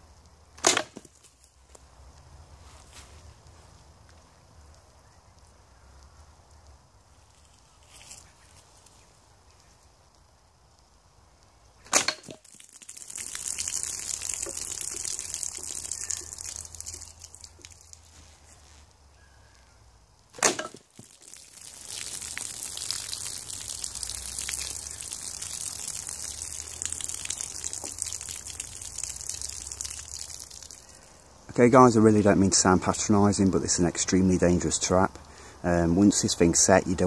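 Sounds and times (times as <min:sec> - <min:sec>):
bow release crack: 0:11.8 - 0:12.6, 0:20.3 - 0:22.0
water gushing and splashing: 0:11.9 - 0:18.6, 0:20.4 - 0:31.0.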